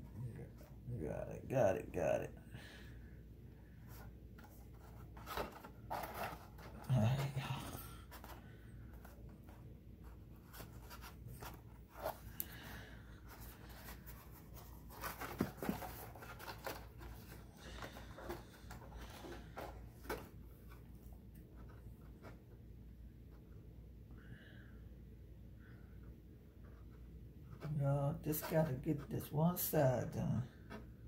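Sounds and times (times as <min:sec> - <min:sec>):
paper rustling and rubbing: 0:03.9 - 0:07.3, 0:08.1 - 0:22.4
paper crinkles: 0:10.4 - 0:20.2.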